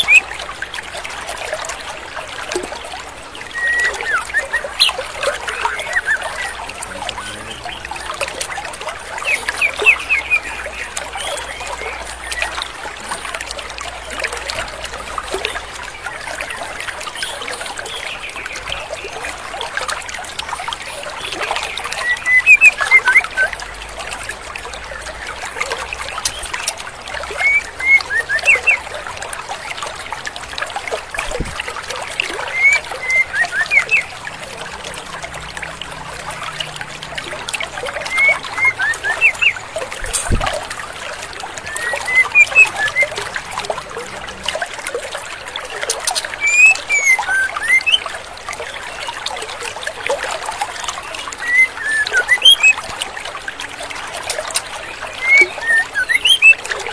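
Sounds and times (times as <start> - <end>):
bird chirping calls: 0.0 - 0.3, 3.4 - 13.3, 21.7 - 23.5, 27.4 - 28.8, 32.4 - 34.2, 37.6 - 40.4, 41.5 - 44.4, 45.9 - 48.1, 51.3 - 52.8, 54.6 - 56.9
babbling stream: 0.0 - 56.9.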